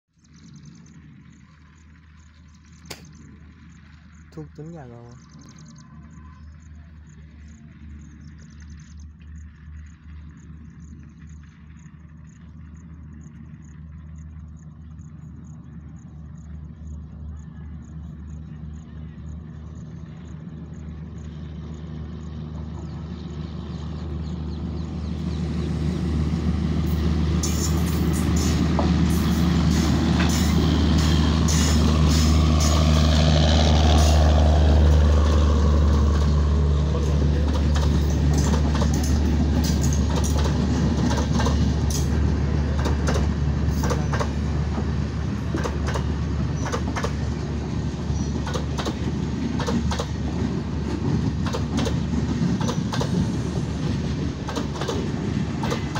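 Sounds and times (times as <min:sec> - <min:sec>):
diesel locomotive engine drone: 0:00.1 - 0:55.9
train wheels clicking over rail joints: 0:26.8 - 0:33.1, 0:33.9 - 0:55.9.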